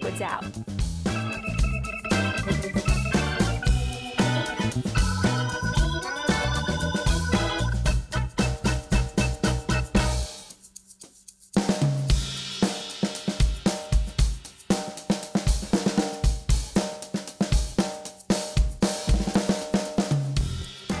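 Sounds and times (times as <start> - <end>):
background music: 0.0 - 10.5
drum kit playing a steady beat: 0.0 - 21.0.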